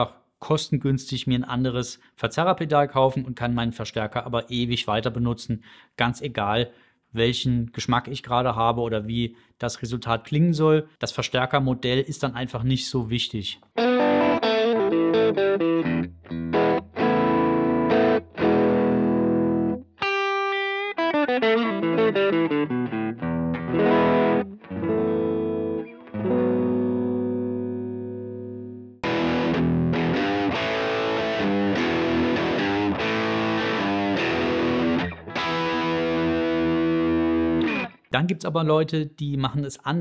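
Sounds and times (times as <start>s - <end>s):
overdriven electric guitar riff: 13.7s - 38.1s.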